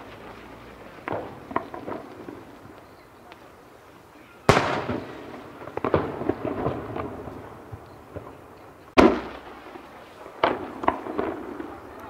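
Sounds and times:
firework bangs and crackles: 0.0 - 12.0
loud echoing firework boom: 4.4 - 12.0.

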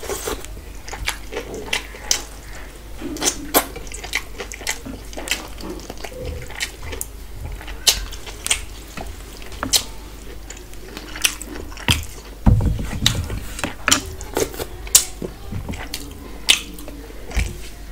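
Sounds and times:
wet smacking and chewing: 0.0 - 17.7
low thump: 12.4 - 13.4.

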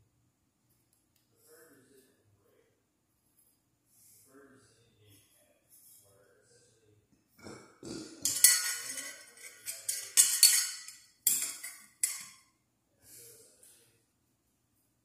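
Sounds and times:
metal parts clinking and scraping: 8.2 - 12.3.

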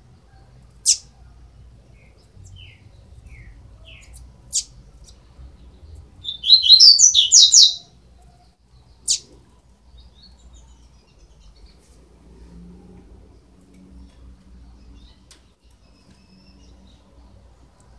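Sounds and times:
rapid bird chirps: 0.8 - 1.2, 6.2 - 7.9
sharp high bird call: 6.2 - 7.9.

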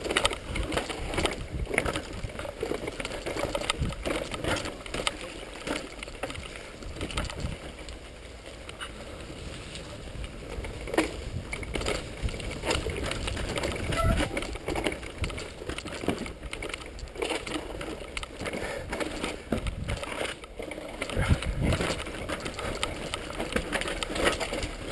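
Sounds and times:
bike frame and chain rattling: 0.0 - 24.9
bike tyres crunching: 0.0 - 24.9.

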